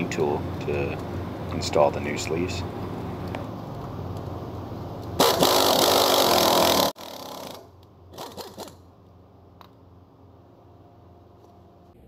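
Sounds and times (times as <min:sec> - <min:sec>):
pneumatic impact wrench: 0:05.2 - 0:08.8.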